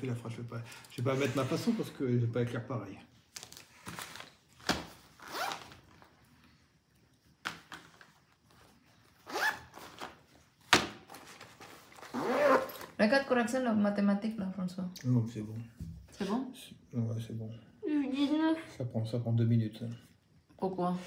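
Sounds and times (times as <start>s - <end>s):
pencil case zipper: 5.2s - 5.8s, 9.2s - 10.0s, 11.9s - 13.0s.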